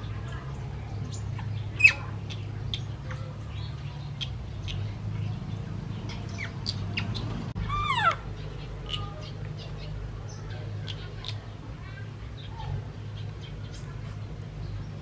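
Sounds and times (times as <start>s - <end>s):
baby monkey chirping: 1.1s - 2.9s, 6.1s - 9.9s
baby monkey squealing: 1.4s - 2.1s, 6.4s - 9.0s.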